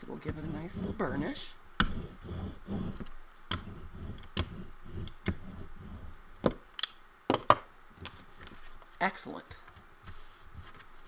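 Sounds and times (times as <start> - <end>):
paper rubbing: 0.0 - 6.1, 9.6 - 11.0.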